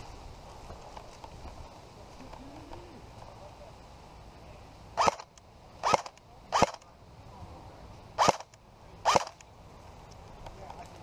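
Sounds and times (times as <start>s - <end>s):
airsoft gun single shots: 5.0s - 6.8s, 8.2s - 9.4s
gun mechanism whir: 5.0s - 6.8s, 8.2s - 9.4s.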